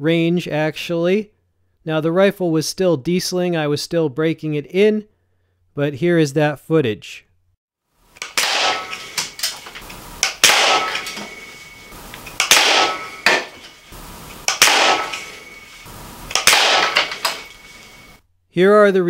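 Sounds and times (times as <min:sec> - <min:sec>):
air rifle shots: 0:08.2 - 0:18.2
small clicks: 0:14.4 - 0:18.1.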